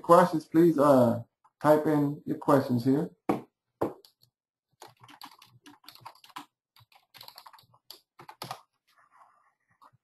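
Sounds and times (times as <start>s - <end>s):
keyboard typing: 3.9s - 8.8s.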